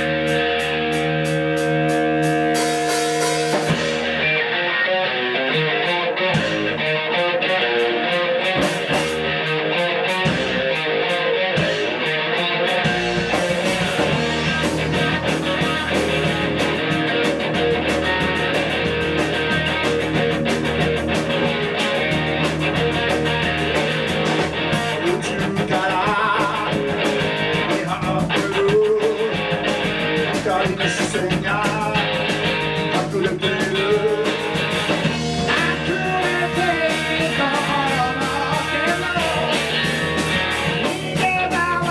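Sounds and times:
rock band playing live: 0:00.0 - 0:41.9
person singing: 0:24.8 - 0:29.6, 0:30.3 - 0:34.7, 0:35.4 - 0:40.0, 0:40.8 - 0:41.9.

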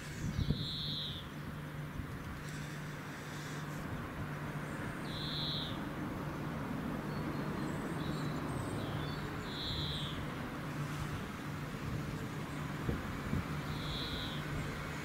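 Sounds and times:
high bird calls: 0:00.0 - 0:01.4, 0:05.0 - 0:05.9, 0:07.0 - 0:10.3, 0:13.6 - 0:14.6
distant diesel locomotive drone: 0:00.0 - 0:15.0
small bird chirps: 0:00.2 - 0:01.3, 0:05.0 - 0:05.8, 0:07.1 - 0:10.2, 0:13.6 - 0:14.5.

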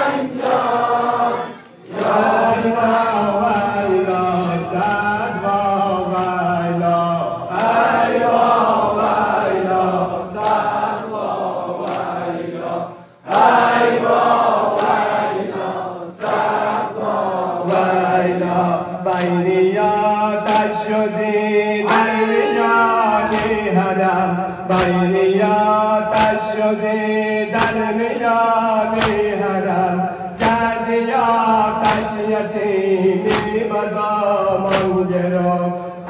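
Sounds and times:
man chanting through loudspeaker: 0:02.2 - 0:10.4, 0:17.0 - 0:36.0
hand slaps on chest: 0:23.3 - 0:23.7, 0:24.8 - 0:25.1, 0:26.1 - 0:26.5, 0:29.0 - 0:29.4, 0:30.4 - 0:30.8, 0:31.8 - 0:32.2, 0:33.2 - 0:33.7, 0:34.6 - 0:35.0.

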